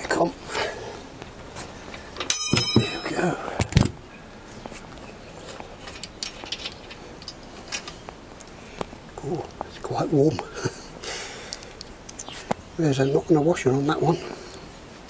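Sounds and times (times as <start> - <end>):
tools clicking and tapping on metal: 2.2 - 3.2, 5.8 - 8.0
metal tool ringing: 2.3 - 3.4.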